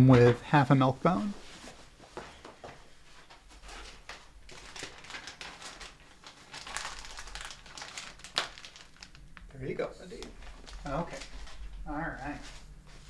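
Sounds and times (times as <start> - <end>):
dog biscuit crinkling and rustling: 3.7 - 9.4.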